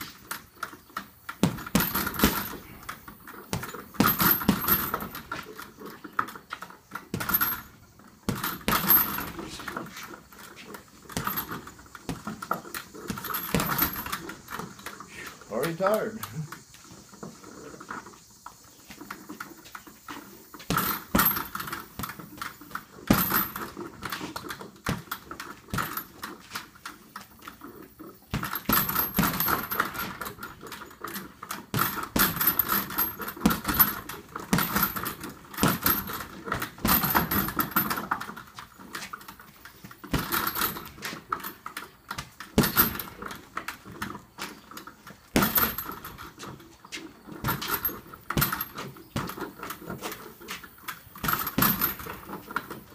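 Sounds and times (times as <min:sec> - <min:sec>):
boxing gloves hitting heavy bag: 0:01.4 - 0:05.5, 0:07.2 - 0:09.9, 0:11.1 - 0:14.7, 0:20.6 - 0:26.2, 0:28.3 - 0:30.4, 0:31.6 - 0:38.2, 0:40.1 - 0:41.2, 0:42.2 - 0:43.2, 0:45.3 - 0:46.5, 0:47.4 - 0:50.2, 0:51.1 - 0:52.6
metallic jingle of hanging bag: 0:07.2 - 0:15.1, 0:20.7 - 0:26.4, 0:27.6 - 0:38.9, 0:44.6 - 0:46.6, 0:47.2 - 0:52.9.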